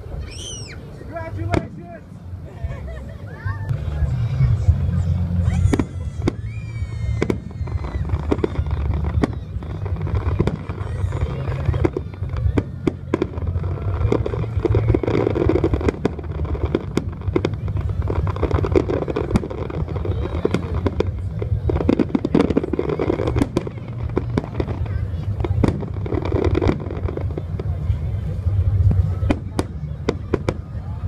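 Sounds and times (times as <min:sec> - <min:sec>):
low rumble: 0:00.0 - 0:31.0
whistling fireworks: 0:00.1 - 0:02.1, 0:04.0 - 0:31.0
fireworks bangs and crackles: 0:00.3 - 0:31.0.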